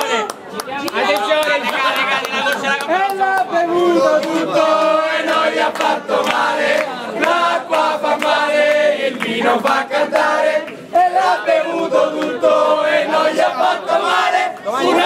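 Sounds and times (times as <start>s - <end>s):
hand claps: 0.0s - 10.8s, 12.1s - 12.4s
crowd cheering: 0.0s - 15.0s
crowd singing a chant: 3.2s - 15.0s.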